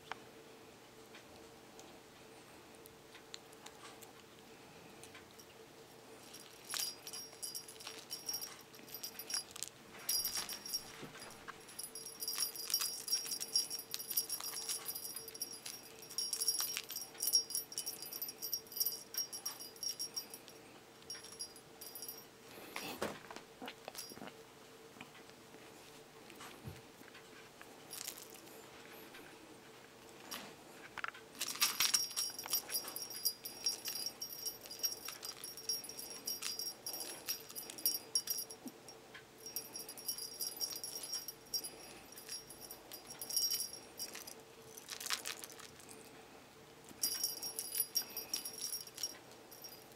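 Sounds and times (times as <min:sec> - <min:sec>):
jingling cat toy: 0:06.2 - 0:22.3, 0:23.9 - 0:24.3, 0:27.9 - 0:28.6, 0:31.4 - 0:45.9, 0:47.0 - 0:49.9.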